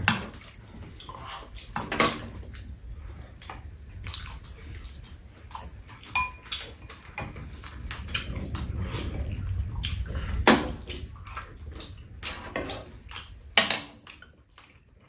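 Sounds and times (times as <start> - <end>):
utensils tapping and scraping bowls: 0.0 - 2.7, 4.9 - 9.1.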